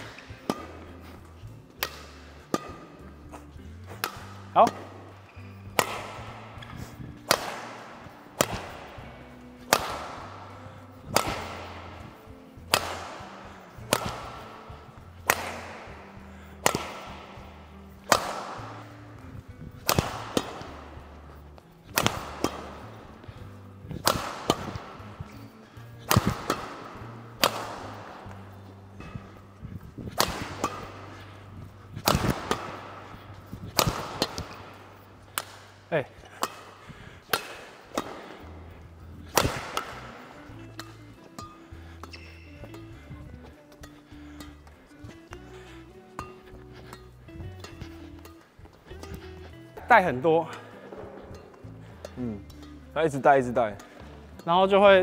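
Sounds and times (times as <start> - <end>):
background music: 0.0 - 55.0
rackets striking shuttlecock: 0.0 - 55.0.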